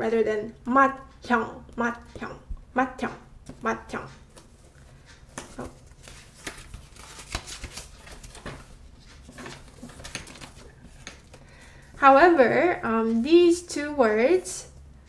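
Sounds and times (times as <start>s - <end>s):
paper flashcards flipping: 4.2s - 11.7s.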